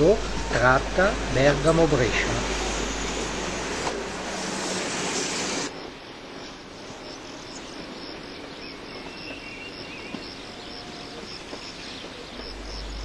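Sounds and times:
electric railcar passing: 0.0 - 13.0
crickets chirping: 5.7 - 13.0.

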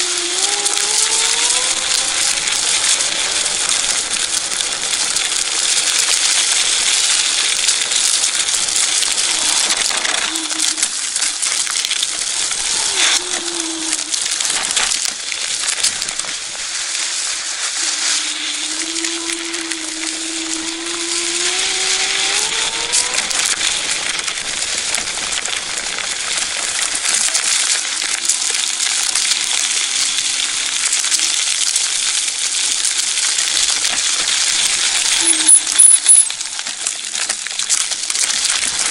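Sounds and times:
electric motor whine: 0.0 - 4.0, 18.0 - 24.4
scooter rattling: 0.0 - 13.2.

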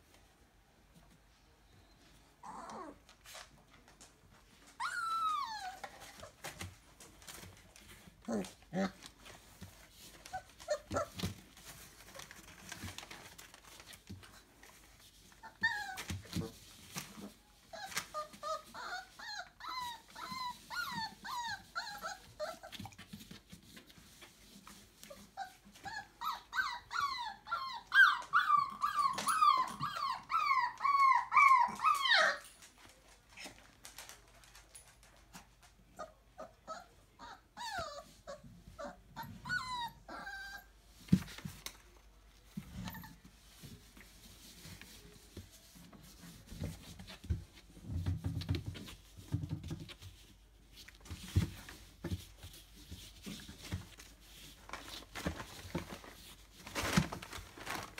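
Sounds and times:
puppies whimpering and squealing: 4.7 - 6.6, 15.3 - 16.5, 17.7 - 23.0, 25.1 - 32.5, 36.0 - 40.8.

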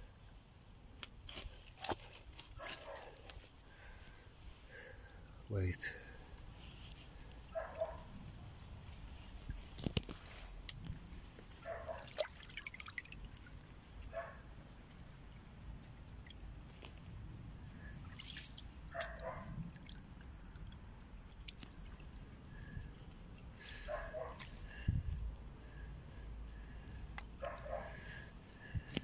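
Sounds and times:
water trickling over stones: 9.0 - 25.5.

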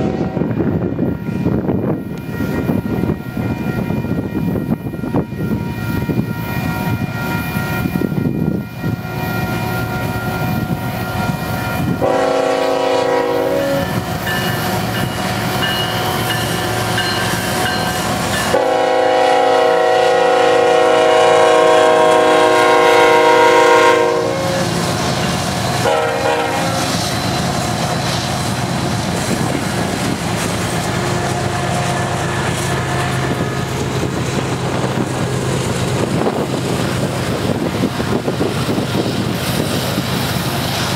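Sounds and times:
locomotive horn blasts: 0.0 - 0.6, 11.2 - 14.1, 18.4 - 24.8, 25.8 - 27.0
locomotive running: 0.0 - 40.9
train wheels on rail: 0.0 - 40.9.

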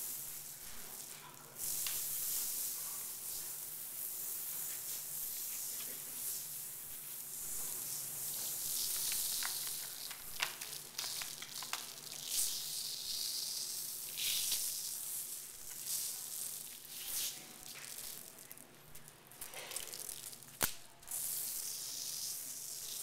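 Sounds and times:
paper bags rustling and crinkling: 8.4 - 12.2.

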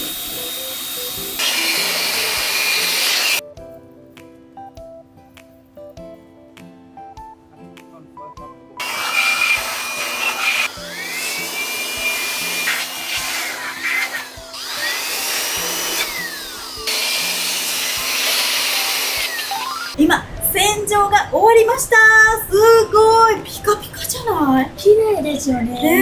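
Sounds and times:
electric air blower whine: 0.0 - 3.4, 8.8 - 20.0.

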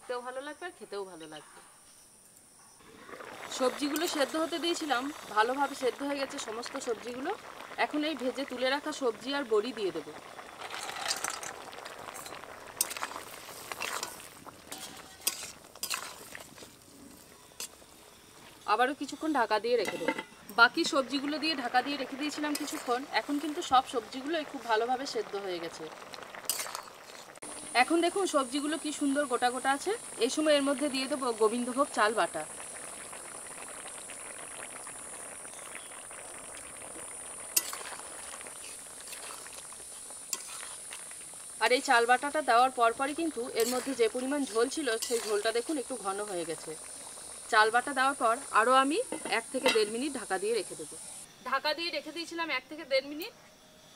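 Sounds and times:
curry simmering hiss: 0.0 - 53.3
spatula clinking metal pan: 14.0 - 16.2, 19.8 - 20.4, 45.0 - 45.4, 49.1 - 50.0
ladle clinking against pan: 19.8 - 20.4, 49.1 - 50.0.

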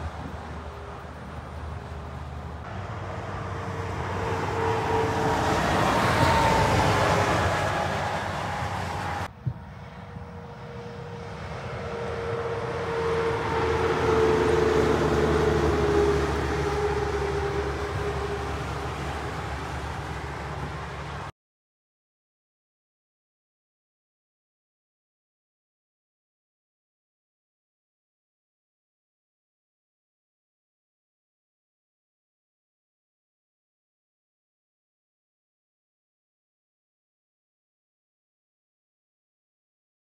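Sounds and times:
heavy trucks driving past: 0.0 - 21.3.

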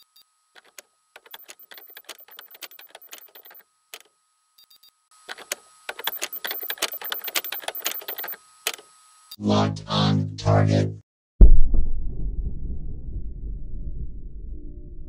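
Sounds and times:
rapid irregular clicking: 0.6 - 4.1, 5.3 - 8.8
faint high electronic tones: 6.0 - 8.6.

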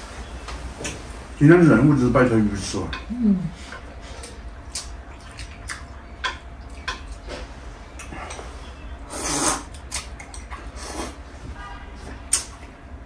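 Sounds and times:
chopsticks clicking on porcelain bowls: 2.9 - 3.1, 5.7 - 7.2.

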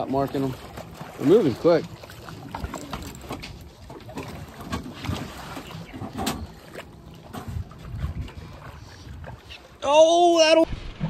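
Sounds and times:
water sloshing against boat: 0.0 - 11.0
wind on microphone: 7.3 - 9.7.

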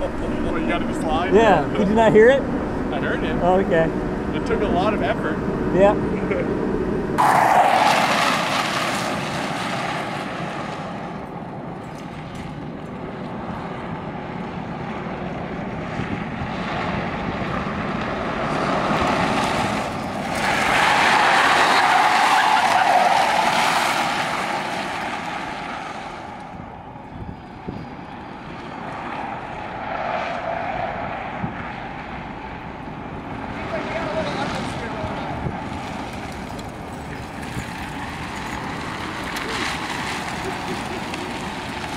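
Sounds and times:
car engine under load: 0.0 - 41.9.

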